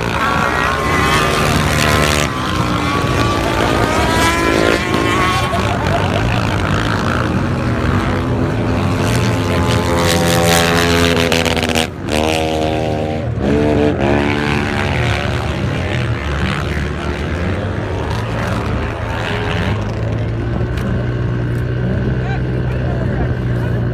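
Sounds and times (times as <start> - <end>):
quad engines revving: 0.0 - 23.9.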